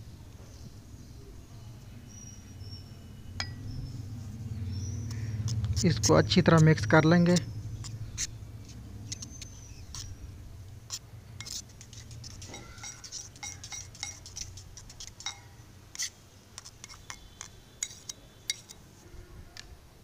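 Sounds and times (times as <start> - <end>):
knife beating egg in a bowl: 5.1 - 10.2, 10.9 - 18.8.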